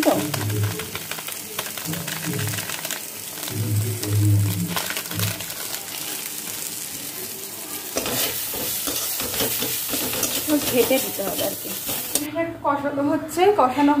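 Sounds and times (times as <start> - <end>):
masala frying with sizzle: 0.0 - 12.3
metal spatula scraping a pan: 7.9 - 12.3.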